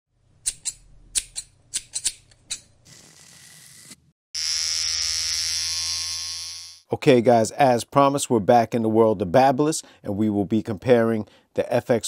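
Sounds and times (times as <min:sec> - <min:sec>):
electric hair trimmer buzzing: 0:02.8 - 0:06.9.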